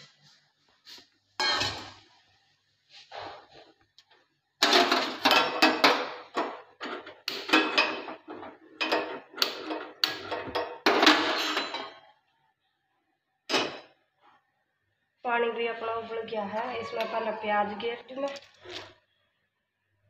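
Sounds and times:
metal pots and utensils clanking: 1.4s - 2.1s, 4.6s - 12.1s, 13.5s - 13.9s.

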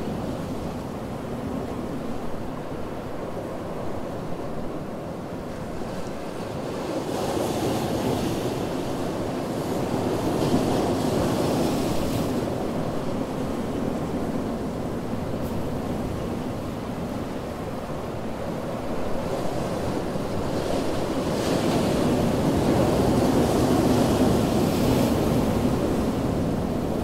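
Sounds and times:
ocean surf rushing: 5.5s - 27.0s.

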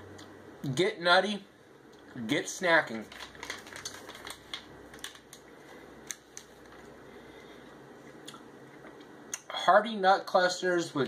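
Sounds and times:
low room hum: 0.0s - 11.0s
snack bag crinkling: 2.9s - 7.0s.

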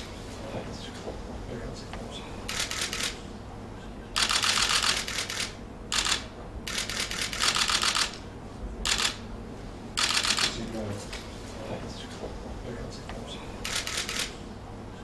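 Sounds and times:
rapid clicking bursts: 2.5s - 3.2s, 4.2s - 8.2s, 8.9s - 9.2s, 10.0s - 10.6s, 13.6s - 14.3s.

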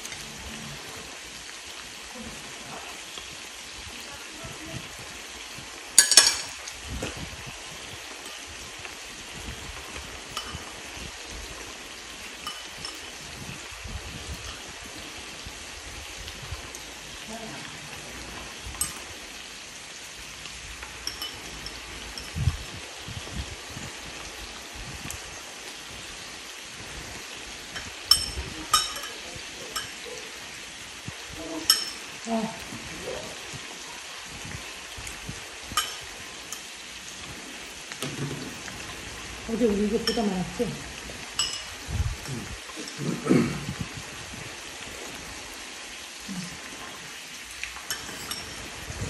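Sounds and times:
meat and vegetables sizzling in pan: 0.0s - 49.0s
utensil clinking against bowl: 6.0s - 6.6s, 12.4s - 13.1s, 21.0s - 22.4s, 27.7s - 30.0s, 31.6s - 32.1s, 35.8s - 36.6s, 41.4s - 41.8s, 47.9s - 48.6s.

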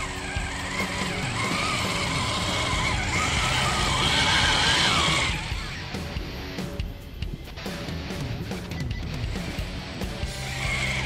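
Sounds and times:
toy truck electric motor whining: 0.0s - 5.8s, 10.4s - 11.0s.

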